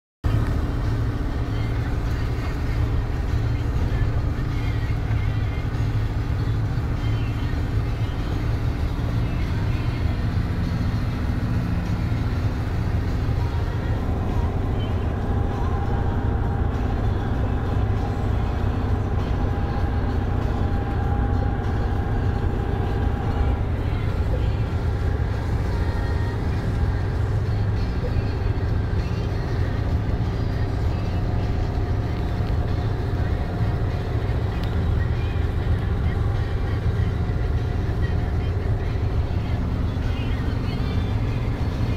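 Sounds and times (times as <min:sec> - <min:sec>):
road noise: 0:00.2 - 0:41.9
truck engine droning: 0:00.2 - 0:41.9.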